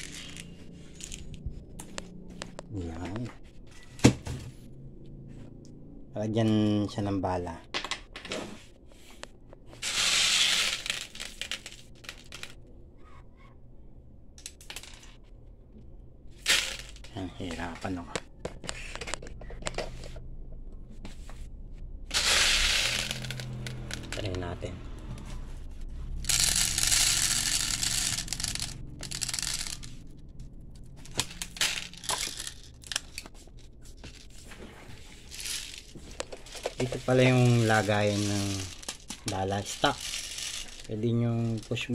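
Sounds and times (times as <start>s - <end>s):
metal pellets rattling: 0.0s - 1.5s, 9.8s - 12.6s, 16.4s - 17.8s, 22.1s - 24.7s, 26.2s - 30.2s, 30.8s - 33.3s, 35.0s - 41.9s.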